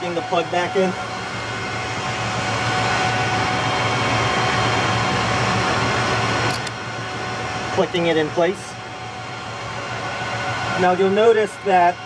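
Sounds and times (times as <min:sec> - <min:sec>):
cooling fans whirring: 0:00.0 - 0:12.0
low electrical hum: 0:00.0 - 0:12.0
connector clicking into place: 0:06.5 - 0:06.8.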